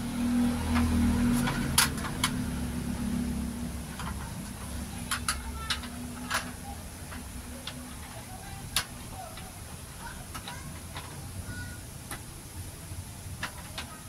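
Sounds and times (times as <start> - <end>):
steady low hum: 0.0 - 14.0
metal slats clicking and clattering: 0.7 - 2.5, 3.8 - 9.5.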